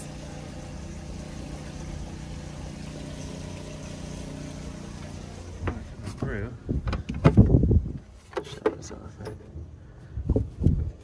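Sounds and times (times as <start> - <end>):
water pump humming: 0.0 - 7.2.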